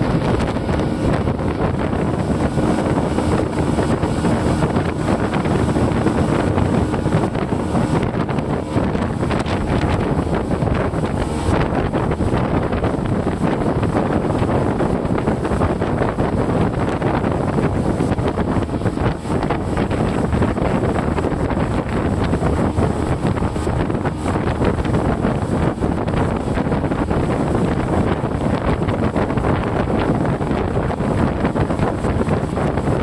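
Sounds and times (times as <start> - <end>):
boat engine and water rush: 0.0 - 33.0.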